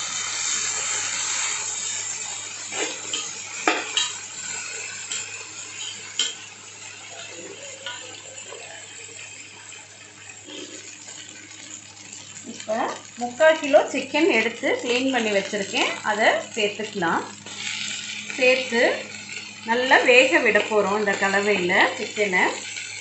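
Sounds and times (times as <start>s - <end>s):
onions and tomatoes sizzling in oil: 0.0s - 23.0s
metal spoon scraping and clinking pan: 2.7s - 8.8s.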